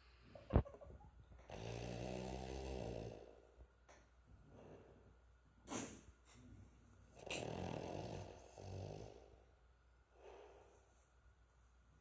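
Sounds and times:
dog snoring: 1.5 - 3.4, 7.2 - 9.4
dog puff of breath: 5.6 - 6.4.

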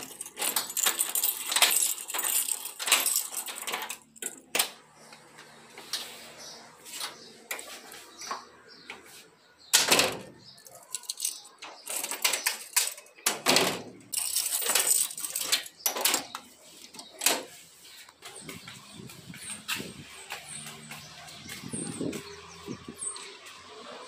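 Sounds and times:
keys jangling: 0.0 - 4.5, 10.2 - 16.4.

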